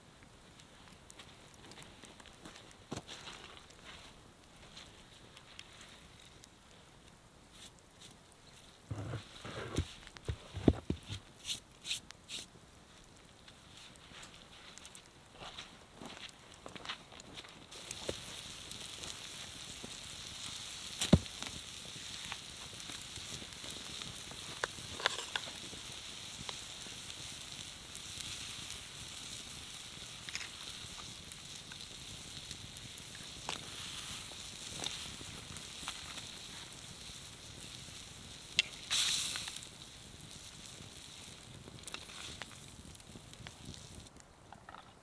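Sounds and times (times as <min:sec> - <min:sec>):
meat sizzling on hot stone: 0:17.3 - 0:44.1.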